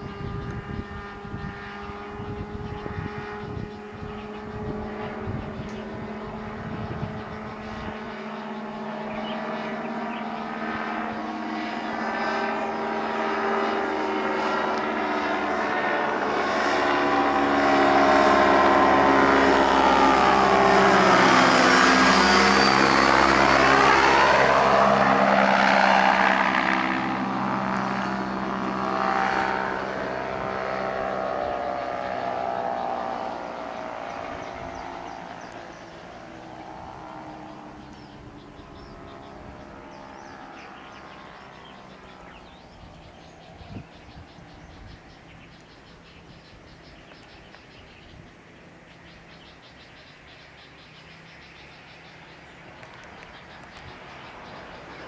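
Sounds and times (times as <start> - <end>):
wind rumble on microphone: 0.0 - 9.5, 22.6 - 48.4
ultralight aircraft engine droning: 0.0 - 55.0.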